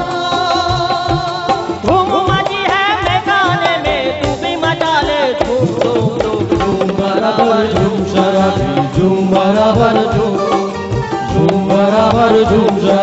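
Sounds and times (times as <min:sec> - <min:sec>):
tabla rhythm: 0:00.0 - 0:13.0
keyboard melody: 0:07.4 - 0:13.0.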